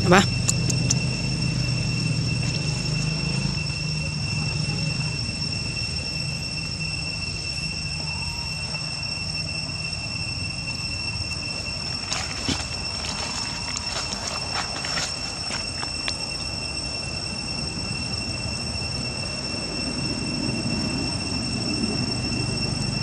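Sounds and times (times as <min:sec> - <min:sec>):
insects droning: 0:00.0 - 0:23.0.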